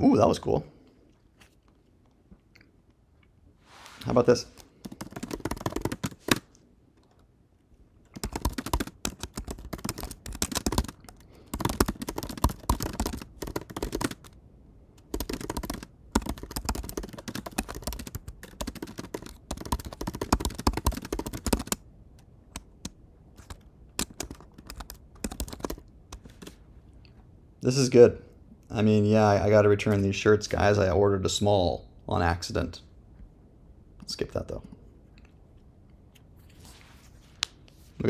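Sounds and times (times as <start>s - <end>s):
keyboard typing: 4.6s - 7.3s, 8.0s - 14.4s, 15.0s - 26.6s.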